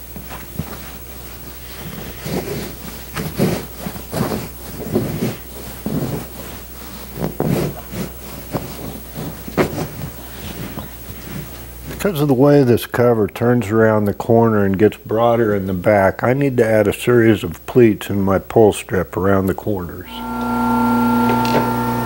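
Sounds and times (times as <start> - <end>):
fabric rustling and brushing: 0.0 - 12.2
steady low hum: 0.0 - 22.0.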